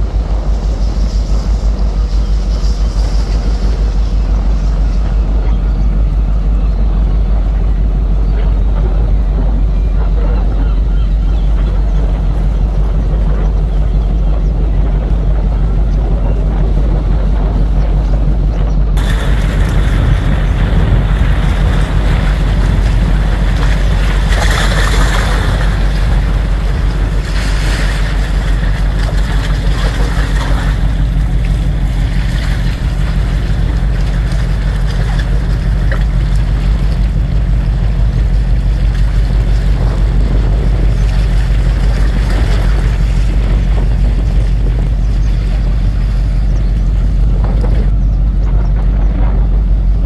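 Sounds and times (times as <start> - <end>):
wind hissing: 0.0 - 8.3, 19.0 - 47.4
wind buffeting microphone: 0.0 - 50.0.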